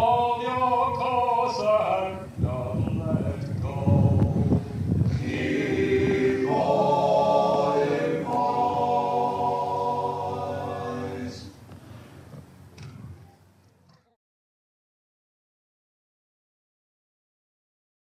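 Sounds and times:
group singing in harmony: 0:00.0 - 0:11.6.

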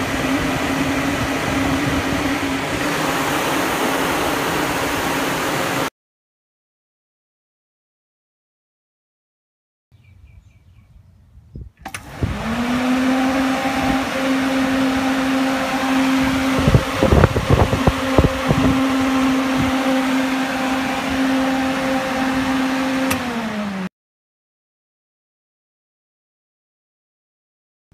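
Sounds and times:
electric radiator fans whirring: 0:00.0 - 0:05.9, 0:11.7 - 0:23.9
fan switch click: 0:11.8 - 0:12.4, 0:23.0 - 0:23.4.

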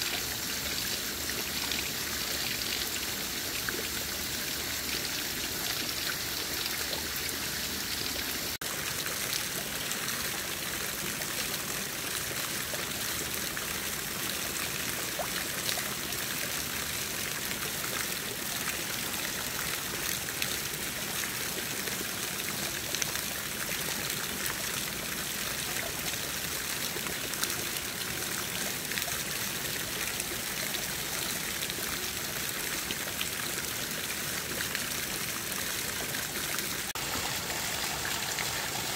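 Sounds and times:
water trickling over stones: 0:00.0 - 0:38.9.

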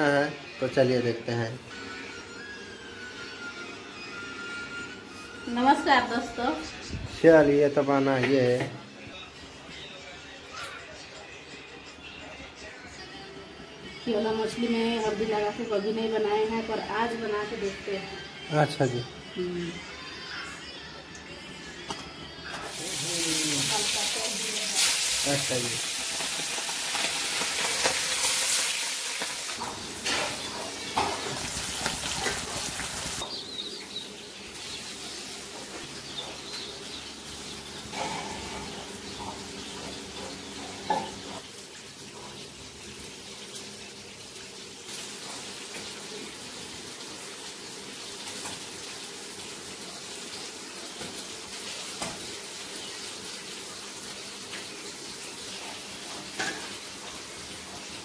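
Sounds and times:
oil sizzling in a wok: 0:22.5 - 0:58.0.

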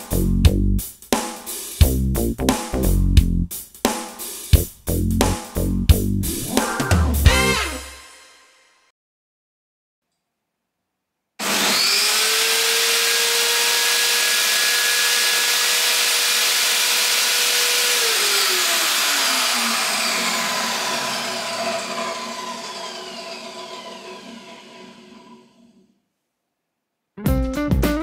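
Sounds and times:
table saw motor whining: 0:06.3 - 0:08.0, 0:11.4 - 0:25.8.

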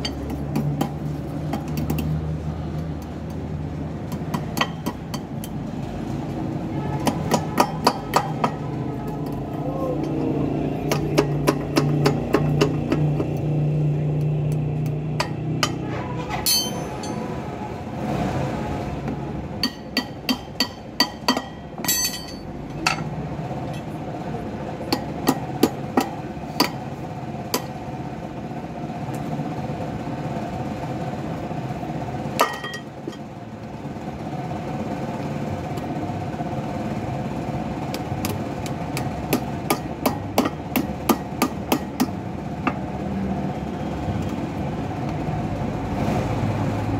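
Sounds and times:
hammer striking steel drift: 0:16.4 - 0:17.4, 0:19.6 - 0:23.1.

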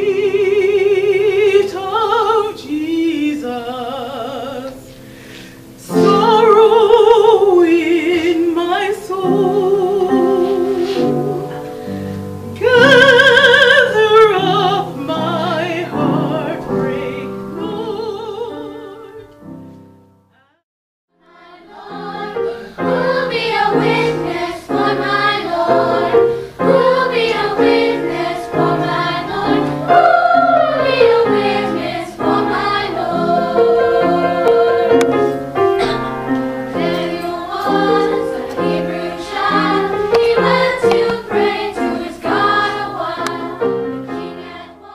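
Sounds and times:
woman singing with vibrato: 0:00.0 - 0:04.8, 0:05.8 - 0:11.7, 0:12.4 - 0:19.3
children's choir singing: 0:00.0 - 0:05.0, 0:05.7 - 0:19.3, 0:21.2 - 0:44.9
piano accompaniment: 0:00.0 - 0:20.4, 0:21.3 - 0:44.9.

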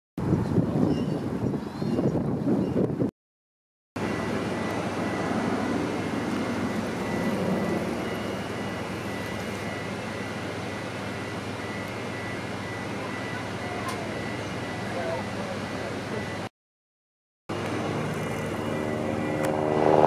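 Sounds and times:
mechanical drone with thin whine: 0:04.0 - 0:16.5, 0:17.5 - 0:20.0.

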